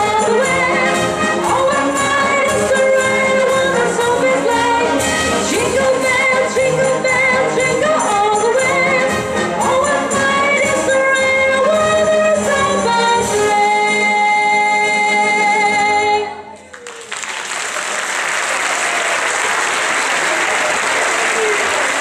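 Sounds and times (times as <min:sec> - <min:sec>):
wind band and choir: 0:00.0 - 0:16.4
audience applause: 0:16.7 - 0:22.0.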